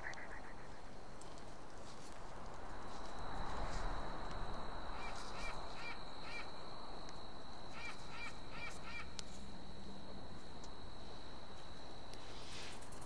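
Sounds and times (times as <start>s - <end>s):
bird calling: 7.7s - 9.1s.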